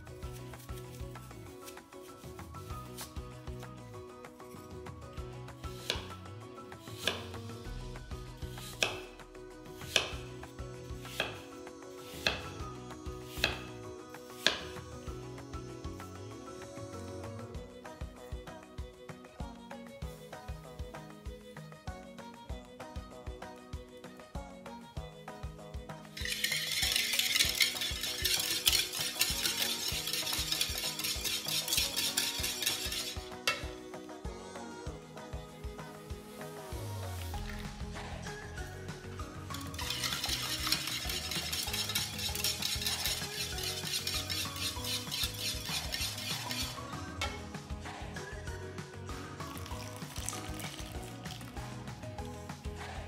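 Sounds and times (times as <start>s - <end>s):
soft background music: 0.0s - 53.0s
knife slicing apple: 5.7s - 6.2s, 6.8s - 7.4s, 8.5s - 9.2s, 9.8s - 10.4s, 11.0s - 12.6s, 13.3s - 13.8s, 14.4s - 14.8s, 26.2s - 33.7s, 39.7s - 47.4s
whisk beating in a bowl: 26.2s - 33.7s, 39.5s - 47.4s, 49.5s - 51.5s.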